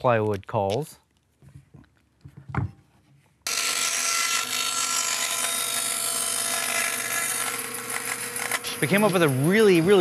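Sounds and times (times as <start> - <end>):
bandsaw cutting wood: 3.5 - 10.0.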